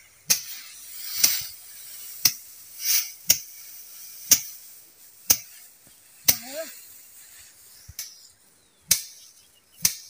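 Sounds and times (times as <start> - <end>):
stick whacking rice straw: 0.2 - 6.7, 8.9 - 9.2, 9.8 - 10.0
straw rustling swish: 0.3 - 8.0.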